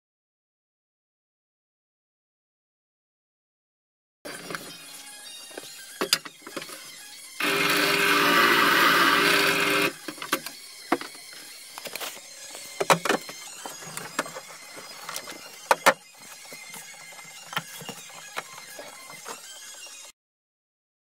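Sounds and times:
drill press boring into wood: 0:07.4 - 0:10.6.

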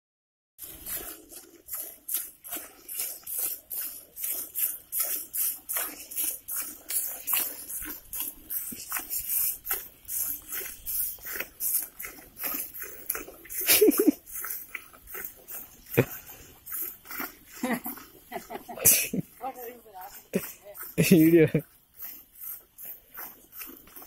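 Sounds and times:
milk squirting into steel bucket: 0:00.6 - 0:14.6.

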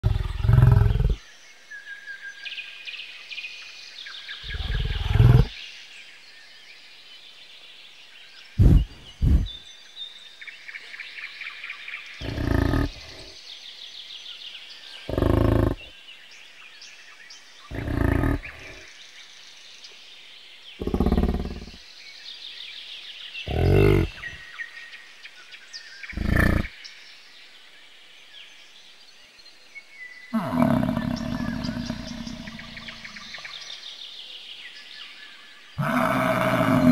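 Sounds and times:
birds chirping: 0:00.0 - 0:36.9
cow bellowing: 0:12.2 - 0:13.2.

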